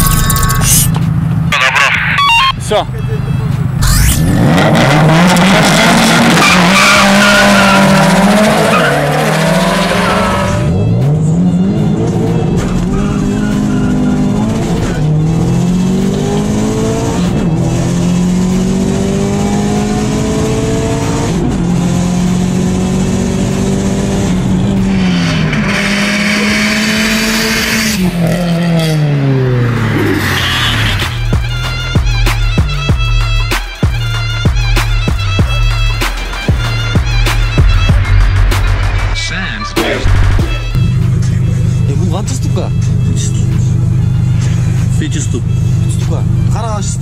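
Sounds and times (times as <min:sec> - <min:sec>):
car engines launching: 0:03.5 - 0:31.2
car engine revving through gears: 0:03.7 - 0:31.2.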